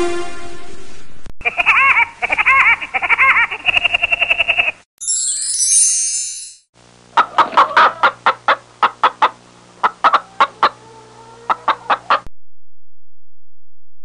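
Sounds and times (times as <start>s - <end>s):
hen clucking: 1.4s - 4.8s, 7.2s - 12.3s.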